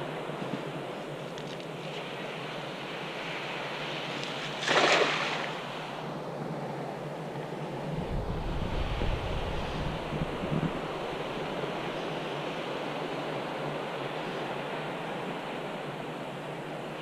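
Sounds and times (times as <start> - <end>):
wind buffeting microphone: 7.7 - 12.5
wind rushing through reeds: 7.7 - 15.2.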